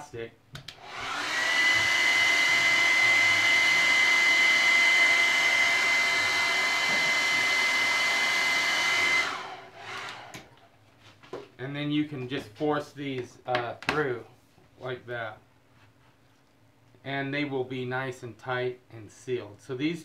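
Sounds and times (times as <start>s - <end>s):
blow dryer blowing air: 0.7s - 10.6s.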